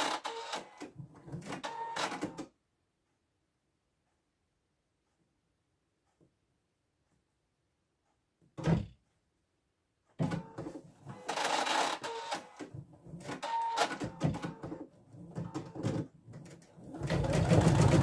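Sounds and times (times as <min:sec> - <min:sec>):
embroidery machine stitching: 0:00.0 - 0:02.4, 0:10.2 - 0:18.0.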